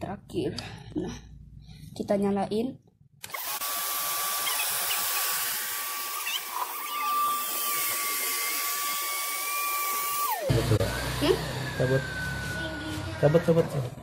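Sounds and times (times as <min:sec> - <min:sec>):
electric air pump whining: 0:03.2 - 0:14.0.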